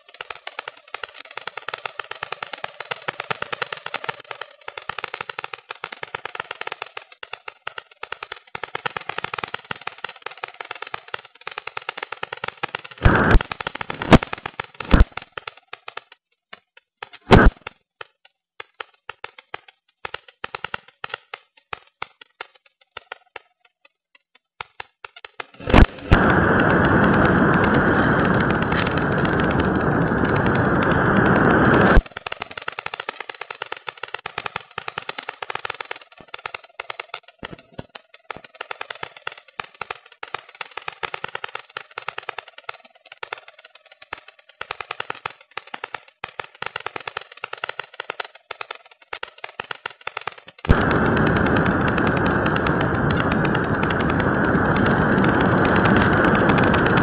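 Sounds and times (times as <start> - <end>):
electric motor and propeller: 0.0 - 23.9, 24.6 - 57.0
rapid crackling and clicking: 0.0 - 57.0
loud thumps: 13.0 - 15.4, 17.2 - 17.7, 25.6 - 32.4, 50.6 - 57.0
wind buffeting microphone: 25.7 - 32.0, 50.7 - 57.0.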